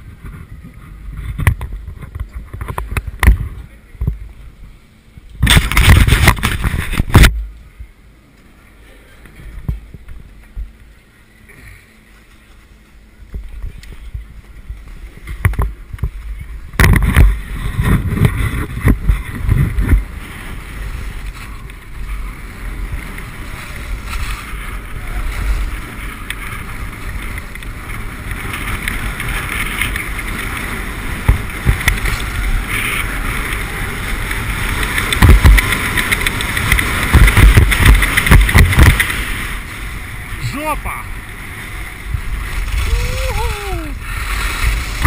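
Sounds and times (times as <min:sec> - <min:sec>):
wind buffeting microphone: 0:00.0 - 0:08.0, 0:13.0 - 0:45.0
skis hissing over snow: 0:17.4 - 0:45.0.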